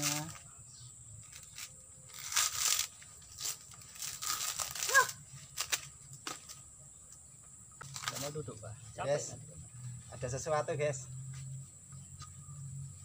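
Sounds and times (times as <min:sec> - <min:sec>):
coconut husk tearing and crunching: 0:01.2 - 0:06.4, 0:07.8 - 0:08.4.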